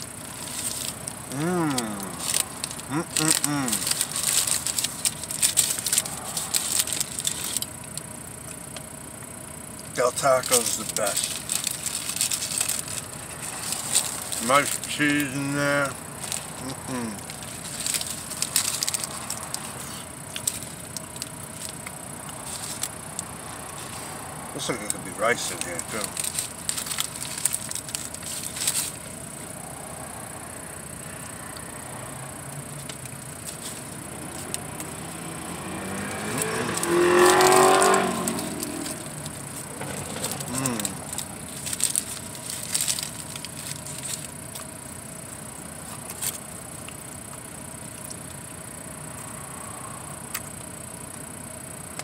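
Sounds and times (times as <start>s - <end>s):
paper wrapper crinkling: 0.0s - 8.9s, 10.0s - 29.6s, 32.5s - 48.6s
vehicle passing by: 34.0s - 40.9s.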